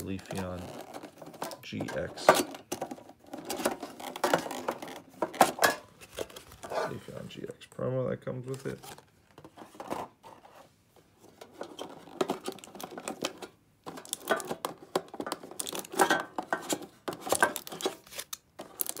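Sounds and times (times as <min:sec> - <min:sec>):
foil wrappers crinkling: 0:00.0 - 0:01.7, 0:15.2 - 0:16.2, 0:17.2 - 0:19.0.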